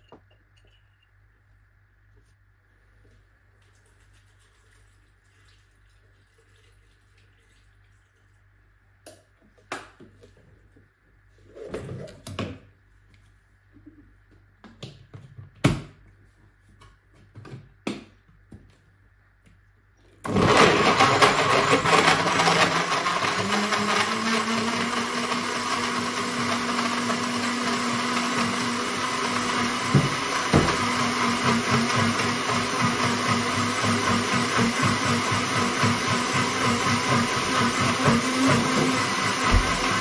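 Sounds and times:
blender motor churning liquid: 20.3 - 40.0.

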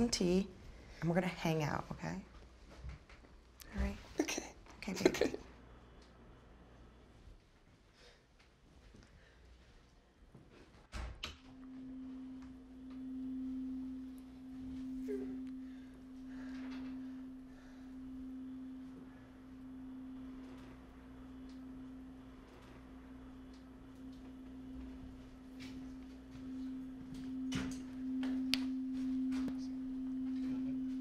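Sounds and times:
steady low pure tone: 11.4 - 31.0.

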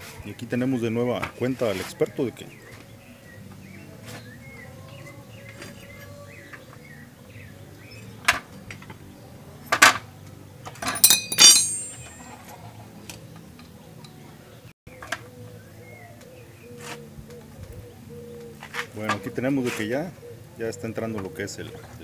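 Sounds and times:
metal clinks of wrench: 10.8 - 12.2
birds chirping: 13.2 - 22.0.

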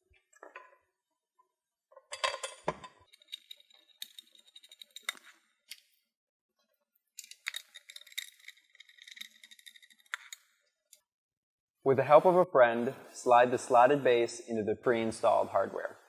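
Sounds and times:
bolts and tools clinking on metal: 2.0 - 5.9, 7.2 - 10.6.

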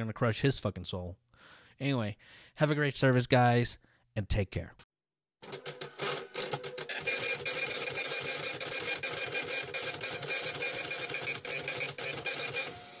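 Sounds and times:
ticket printer clattering: 5.5 - 12.8.

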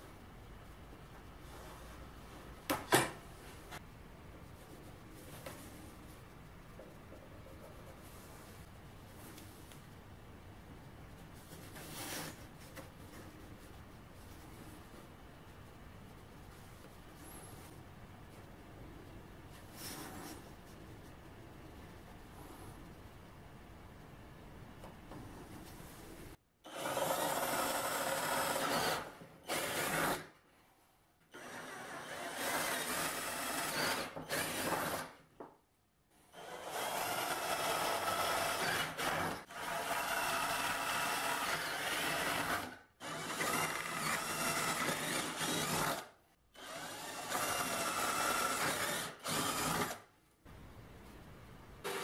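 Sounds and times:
cordless drill boring plywood: 26.7 - 30.2, 31.3 - 35.1, 36.3 - 50.0.

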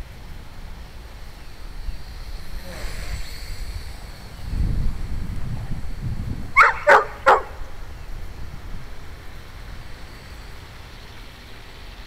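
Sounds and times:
wind rumble on microphone: 0.0 - 12.0
dog barking: 6.6 - 7.6.

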